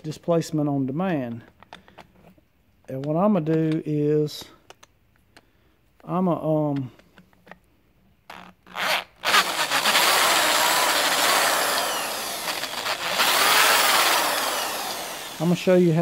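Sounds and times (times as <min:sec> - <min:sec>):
electric drill boring into metal: 0:08.3 - 0:15.8.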